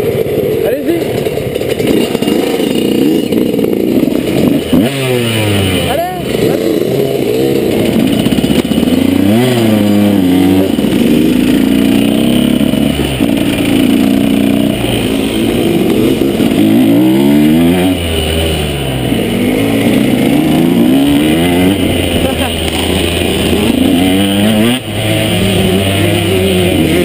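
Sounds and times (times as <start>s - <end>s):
motorbike engine revving: 0.0s - 27.0s.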